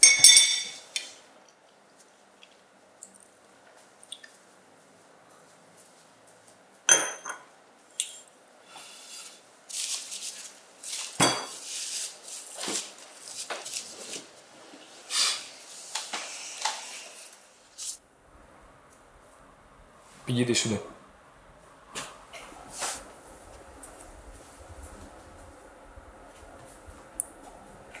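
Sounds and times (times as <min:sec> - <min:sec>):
cup clinking on saucer: 0:00.0 - 0:00.8, 0:06.9 - 0:07.5
tableware clinking: 0:00.0 - 0:00.9, 0:06.9 - 0:07.5, 0:11.2 - 0:11.6
rustles and light knocks: 0:09.7 - 0:15.0.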